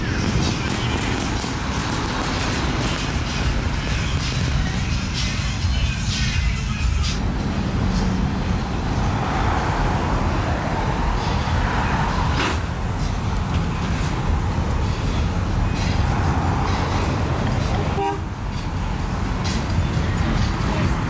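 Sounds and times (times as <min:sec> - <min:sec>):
cars rolling past: 0:00.0 - 0:21.0.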